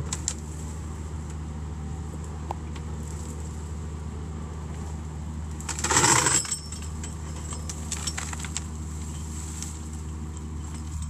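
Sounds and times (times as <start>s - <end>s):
mulcher shredding brush: 0.0s - 11.0s.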